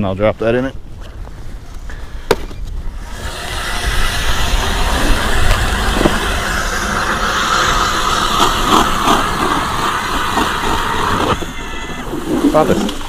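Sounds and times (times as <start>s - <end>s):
ice auger grinding whirr: 3.0s - 13.0s.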